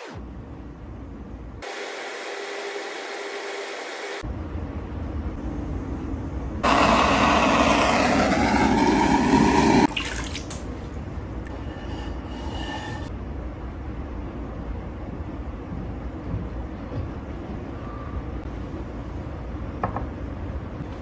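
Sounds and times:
pottery wheel humming: 0.0 - 14.1
propane torch roaring: 6.6 - 10.0.

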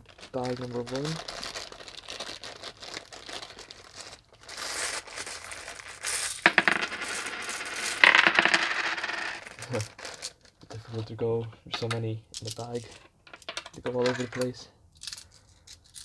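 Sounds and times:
plastic bag crinkling: 0.0 - 6.0
coins spilling onto table: 4.5 - 10.4
coins clinking and jingling: 4.6 - 10.4, 12.4 - 16.0.

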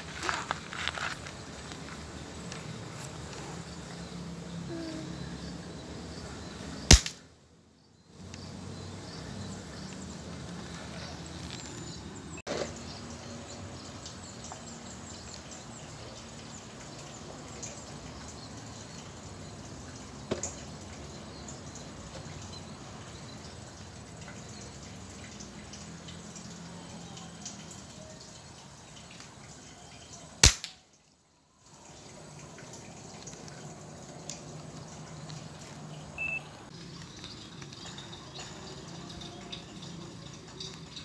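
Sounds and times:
outdoor background hiss: 0.0 - 41.0
air rifle shot crack: 6.9 - 7.2, 30.4 - 30.8.

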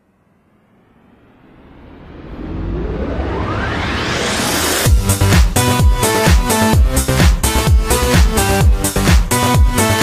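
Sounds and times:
low rumble: 0.0 - 6.0
rising noise sweep: 0.0 - 7.6.

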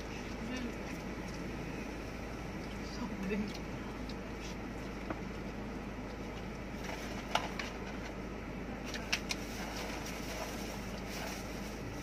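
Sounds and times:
low hum in car cabin: 0.0 - 12.0
food wrappers rustling: 8.8 - 12.0.

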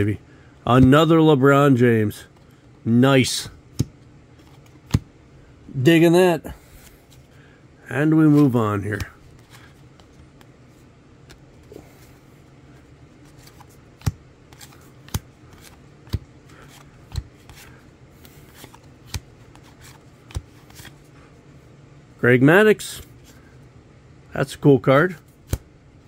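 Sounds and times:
cards rustling: 3.2 - 5.1, 5.8 - 21.3
card snapping onto pile: 25.4 - 25.7.

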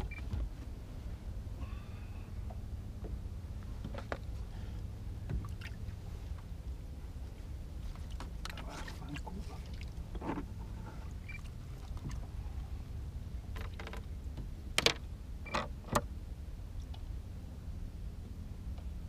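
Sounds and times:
steady low rumble: 0.0 - 19.0
fishing gear clicking and knocking: 13.5 - 14.1.

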